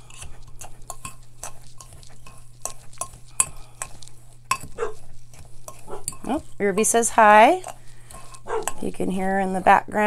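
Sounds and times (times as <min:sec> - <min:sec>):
fork clinking on glass bowl: 0:07.6 - 0:08.9.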